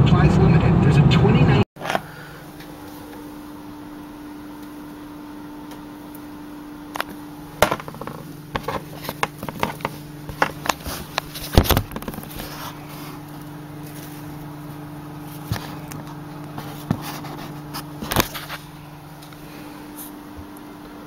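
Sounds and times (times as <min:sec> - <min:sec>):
handling clicks and knocks: 0:07.0 - 0:12.4.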